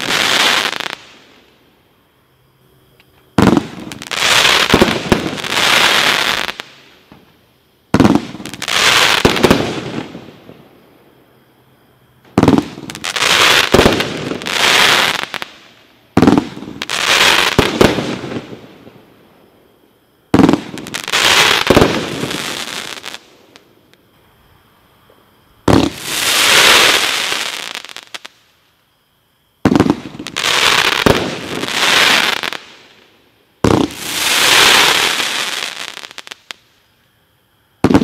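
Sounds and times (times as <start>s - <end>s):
firework crackling hiss: 0.0s - 1.6s, 3.3s - 10.6s, 12.3s - 19.2s, 20.3s - 24.0s, 25.6s - 28.7s, 29.6s - 36.9s
firework bangs: 3.3s - 7.3s, 7.9s - 10.6s, 12.3s - 18.8s, 20.3s - 23.2s, 25.6s - 28.3s, 29.6s - 32.8s, 33.6s - 36.4s, 37.8s - 38.0s.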